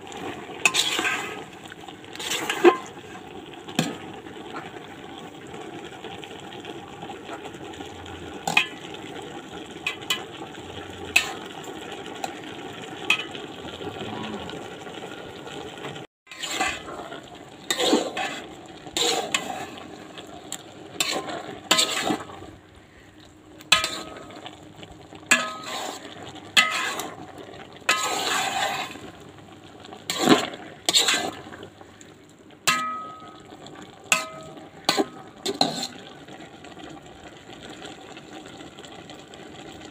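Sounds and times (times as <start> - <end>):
food sizzling in a pan: 0.0 - 39.9
spatula scraping a pan: 0.6 - 1.5, 2.1 - 3.2, 11.0 - 11.5, 16.3 - 20.3, 20.9 - 22.5, 23.7 - 24.5, 25.3 - 29.2, 30.0 - 31.6, 34.1 - 36.2.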